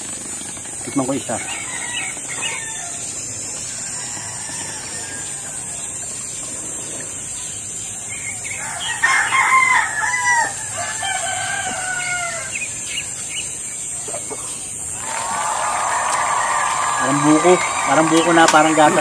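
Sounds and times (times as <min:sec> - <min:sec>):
rooster crowing: 0:01.2 - 0:03.1, 0:03.7 - 0:05.9, 0:08.5 - 0:12.6, 0:14.9 - 0:19.0.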